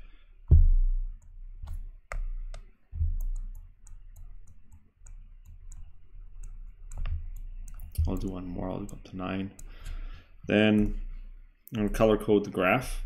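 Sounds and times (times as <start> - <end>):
dull low thumps: 0.4 - 3.5
stylus clicking on a tablet: 1.2 - 10.0.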